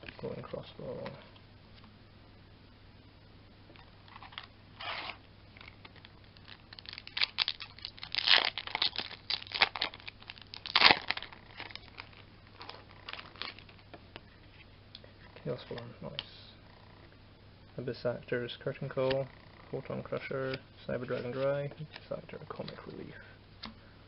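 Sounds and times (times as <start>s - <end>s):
foil wrapper tearing: 6.4s - 13.7s.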